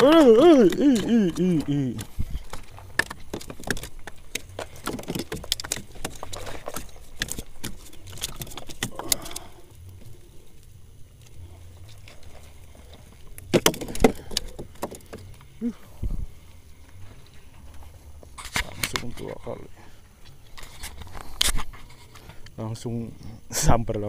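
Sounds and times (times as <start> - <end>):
clicks and rattles in wooden boat: 0.0 - 10.2, 11.2 - 16.2, 18.2 - 19.6.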